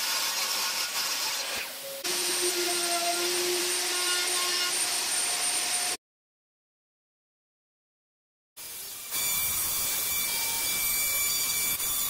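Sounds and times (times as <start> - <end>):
power tool hissing and humming: 0.0 - 6.0, 8.6 - 12.0
table saw cutting plywood: 0.0 - 6.0, 8.6 - 12.0.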